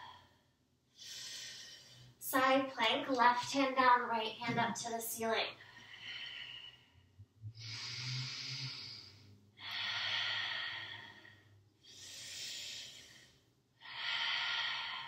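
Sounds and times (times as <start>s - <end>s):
woman breathing: 0.0s - 2.2s, 5.6s - 15.0s.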